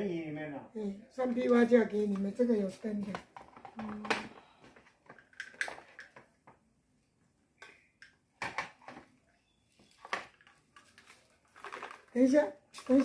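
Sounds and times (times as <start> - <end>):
paper rustling: 9.8 - 13.0.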